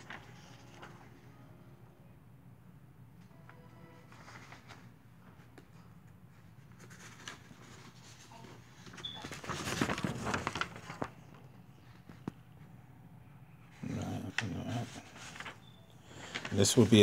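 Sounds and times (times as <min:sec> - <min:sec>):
paper rustling and crinkling: 0:00.0 - 0:01.2, 0:04.0 - 0:12.4, 0:13.8 - 0:17.0
low steady hum: 0:00.0 - 0:17.0.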